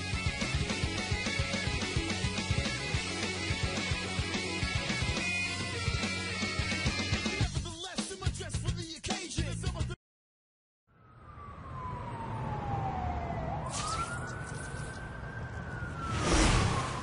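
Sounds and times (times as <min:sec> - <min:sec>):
background music: 0:00.0 - 0:09.9
siren wailing: 0:10.9 - 0:17.0.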